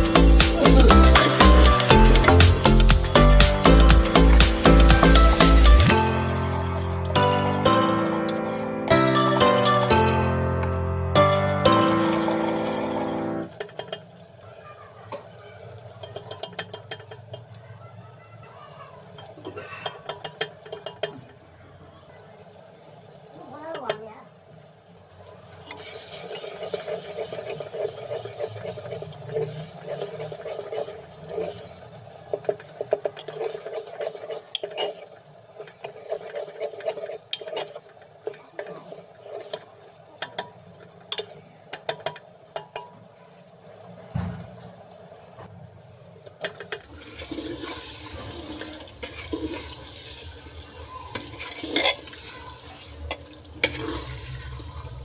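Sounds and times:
masala sizzling in hot oil: 0:00.0 - 0:10.3, 0:11.1 - 0:55.0
ladle scraping a pot: 0:06.1 - 0:08.8, 0:11.8 - 0:14.0, 0:25.7 - 0:39.7, 0:49.0 - 0:49.8, 0:51.1 - 0:52.3.

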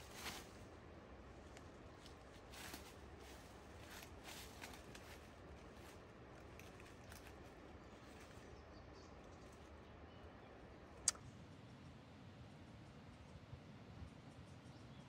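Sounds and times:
soft clicks and rustles: 0:01.4 - 0:08.4.

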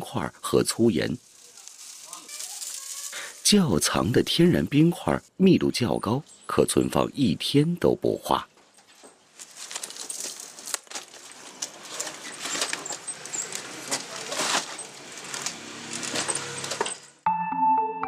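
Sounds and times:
ice chunks clattering: 0:01.3 - 0:03.2, 0:09.4 - 0:17.0.

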